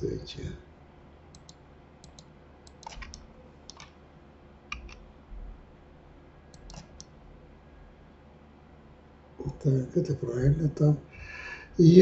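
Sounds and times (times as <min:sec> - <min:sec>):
mouse and keyboard clicks: 0:01.3 - 0:04.0, 0:04.7 - 0:05.0, 0:06.6 - 0:07.1.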